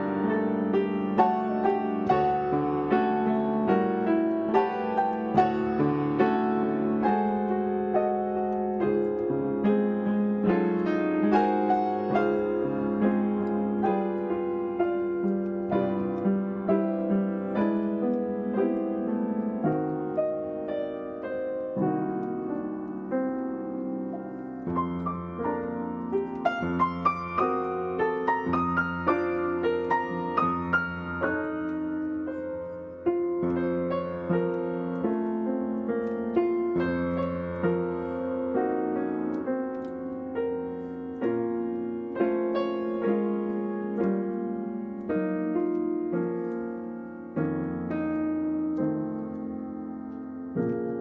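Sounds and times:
solo piano music: 0.0s - 51.0s.

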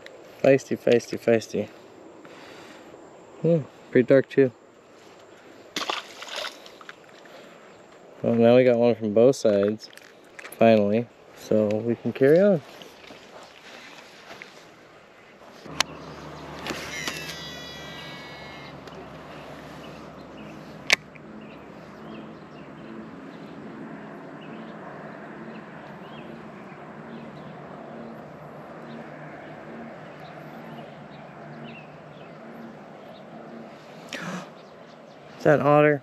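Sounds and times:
faint bird calls: 12.8s - 35.4s
fishing reel spool whining: 15.7s - 20.9s.

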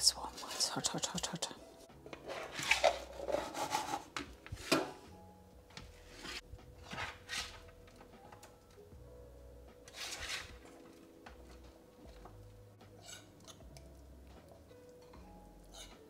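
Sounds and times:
faint background music: 0.0s - 16.0s
spoon scraping a bowl: 13.0s - 13.6s, 15.7s - 16.0s.

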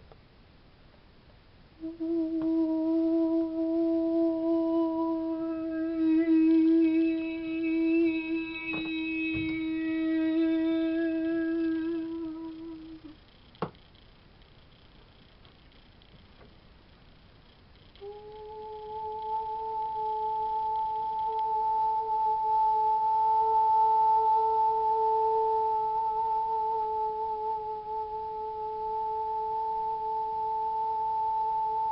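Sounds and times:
woman humming: 1.8s - 13.2s, 18.0s - 31.9s.

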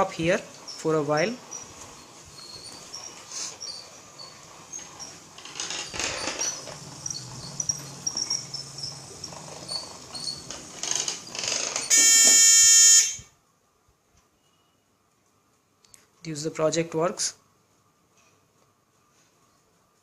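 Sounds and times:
buzzer steady buzz: 11.9s - 13.3s.

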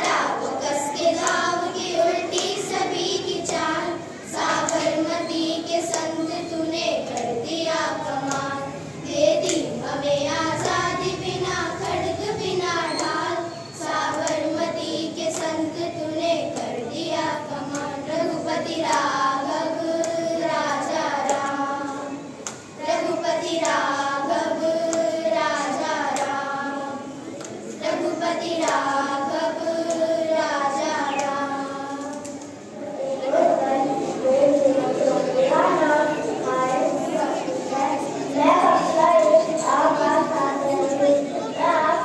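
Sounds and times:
children clapping in time: 0.0s - 32.7s
children singing into a microphone: 0.0s - 42.0s.

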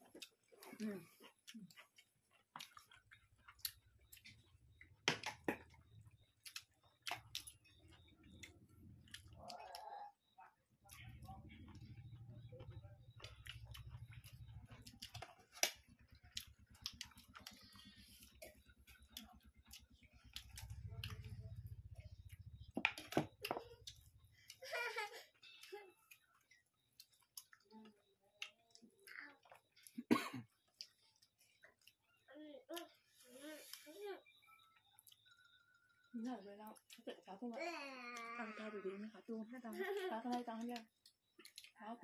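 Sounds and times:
chewing mouth clicks and smacks: 0.0s - 24.6s, 25.5s - 33.0s, 34.8s - 35.6s, 36.6s - 37.3s, 39.6s - 41.9s
wet mouth clicks and smacks: 1.4s - 9.8s, 40.6s - 41.8s.

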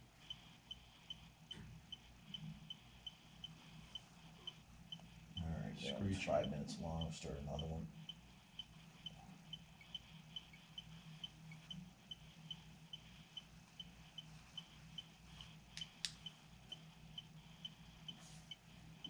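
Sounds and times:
low steady hum: 0.0s - 19.0s
sharp clicks: 15.4s - 16.8s.

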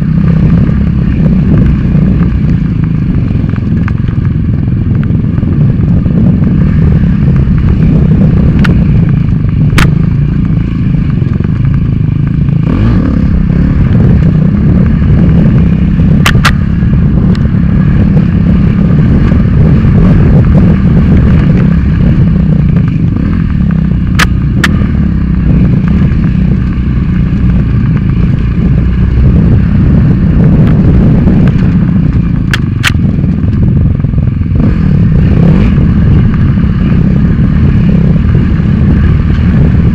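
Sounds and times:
dirt bike engine running hard: 0.0s - 39.9s
wind noise on microphone: 0.0s - 39.9s
sharp clicks: 9.7s - 10.0s, 16.2s - 16.6s, 24.1s - 24.9s, 31.4s - 33.6s.

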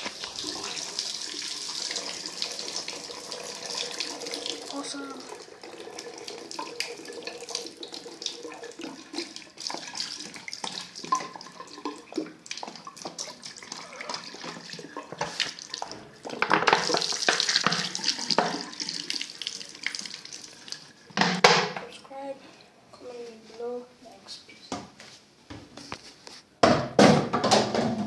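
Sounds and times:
water draining and gurgling: 0.0s - 21.6s.

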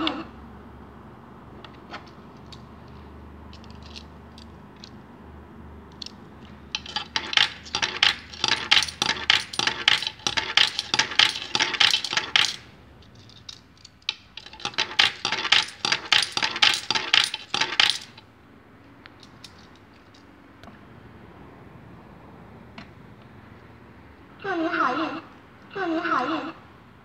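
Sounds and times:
coins clinking through coin acceptor: 5.9s - 18.2s.

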